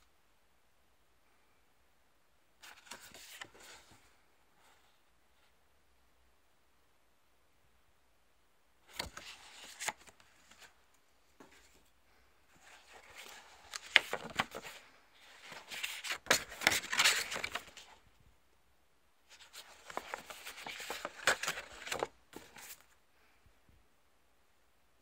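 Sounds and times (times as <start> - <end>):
paper and cardboard crinkling: 12.6 - 18.0, 19.4 - 22.8.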